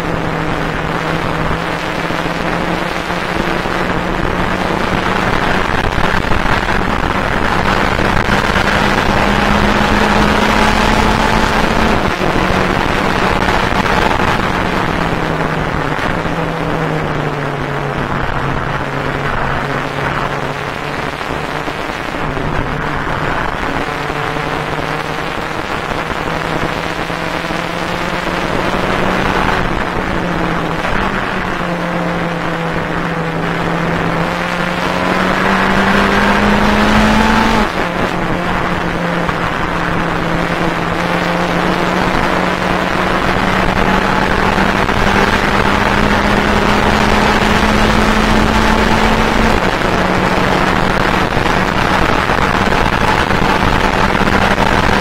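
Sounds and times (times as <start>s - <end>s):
race car engine: 0.0s - 55.0s
road and wind noise: 0.0s - 55.0s.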